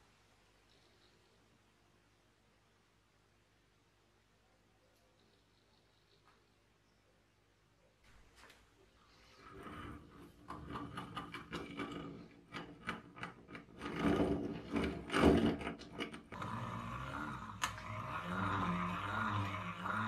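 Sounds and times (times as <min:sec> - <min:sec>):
grinder gears grinding and clicking: 0:09.4 - 0:20.0
grinder wheel whirring: 0:09.4 - 0:20.0.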